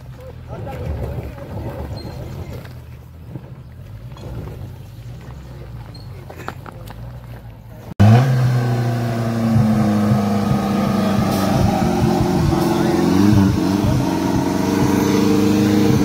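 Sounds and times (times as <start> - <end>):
engine running at high revs: 8.0 - 16.0.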